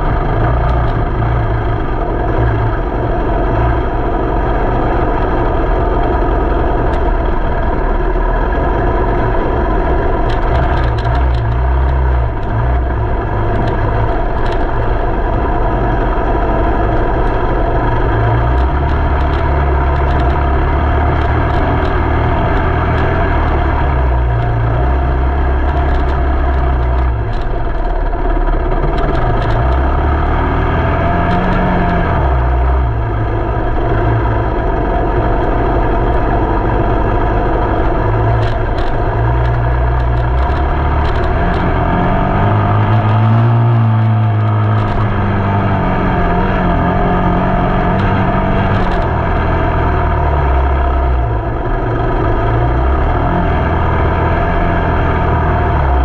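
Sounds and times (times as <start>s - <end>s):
vehicle engine droning: 0.0s - 56.0s
light clicks and rattles: 10.2s - 12.7s, 18.3s - 24.8s, 25.5s - 29.9s, 37.6s - 45.2s, 47.9s - 49.5s.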